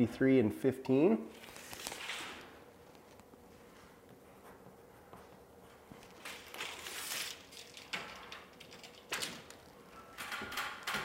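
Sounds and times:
tape measure handling rustles: 0:01.3 - 0:03.2, 0:06.0 - 0:09.6.

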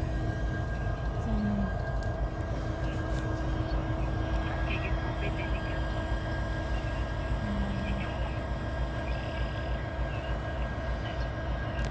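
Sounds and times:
constant hum: 0:00.0 - 0:11.9
diesel locomotive idling: 0:00.0 - 0:11.9.

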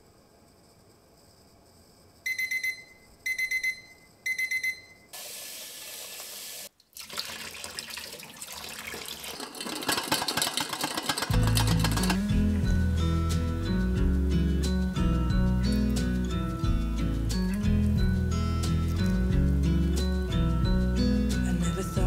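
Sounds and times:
kitchen timer beeping: 0:02.3 - 0:05.1
eggs rattling in steel pot: 0:07.0 - 0:12.6.

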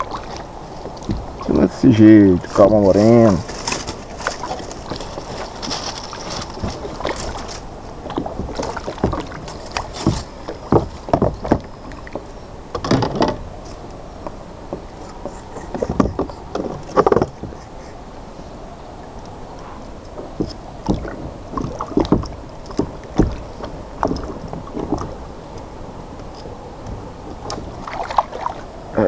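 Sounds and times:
water splashing around kayak: 0:00.0 - 0:29.0
gear knocking on hollow hull: 0:20.3 - 0:25.2.

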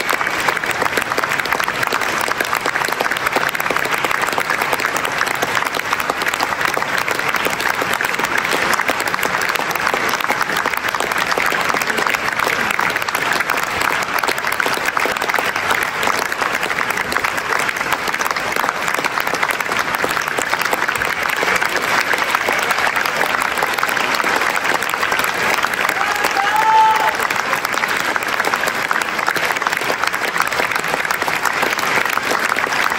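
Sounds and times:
audience applauding: 0:00.0 - 0:32.9.

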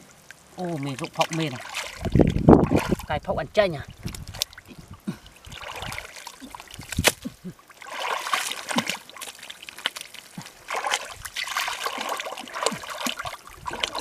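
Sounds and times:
hands sloshing through mud: 0:00.6 - 0:03.2, 0:04.0 - 0:14.0
sharp smack in mud: 0:06.9 - 0:07.3.

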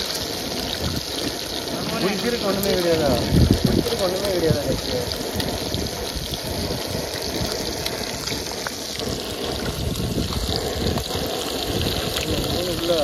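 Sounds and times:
fish sizzling in hot oil: 0:00.0 - 0:13.0.

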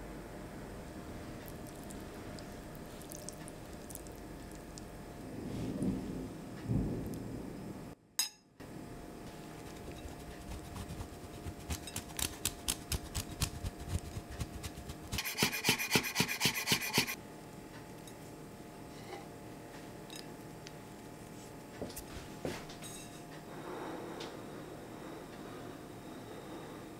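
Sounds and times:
cheese grating rasps: 0:09.5 - 0:17.2.

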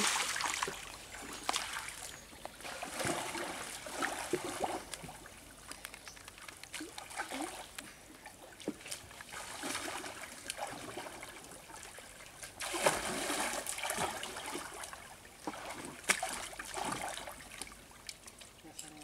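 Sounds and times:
pond water splashing: 0:00.0 - 0:19.0
sharp slap of water: 0:16.0 - 0:17.1.

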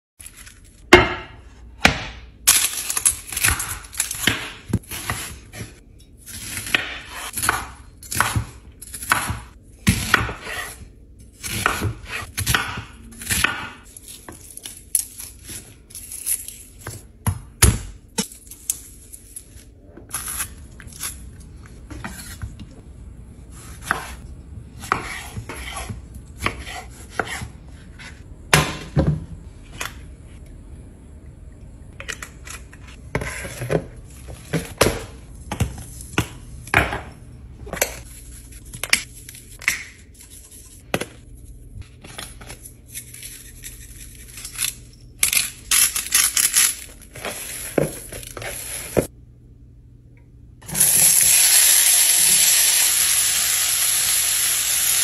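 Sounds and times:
knife chopping on cutting board: 0:06.4 - 0:10.8, 0:11.4 - 0:13.8, 0:23.6 - 0:24.2, 0:24.8 - 0:29.1.

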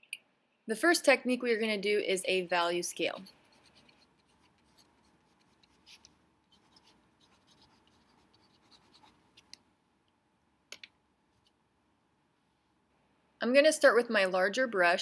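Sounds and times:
pencil scratching on paper: 0:03.1 - 0:09.5.

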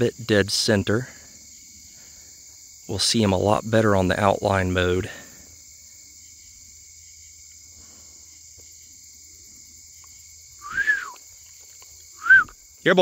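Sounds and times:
crickets and insects chirping: 0:00.0 - 0:13.0
loud rising and falling call: 0:10.6 - 0:11.2.

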